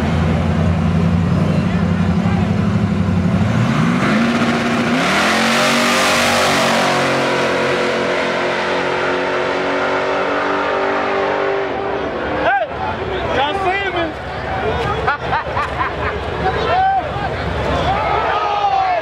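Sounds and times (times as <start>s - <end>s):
pickup truck engine revving: 0.0s - 12.3s.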